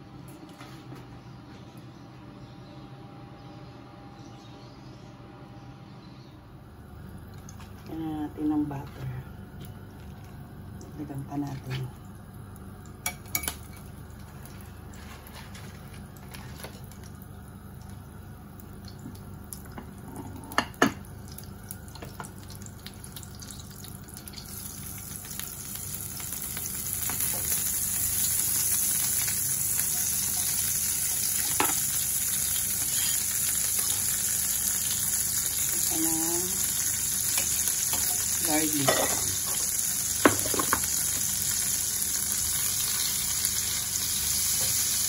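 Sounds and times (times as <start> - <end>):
butter sizzling in frying pan: 21.0 - 45.0.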